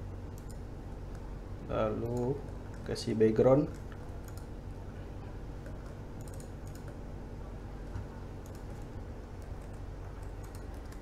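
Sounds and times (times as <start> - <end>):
steady low hum: 0.0 - 11.0
mouse and keyboard clicks: 8.4 - 11.0.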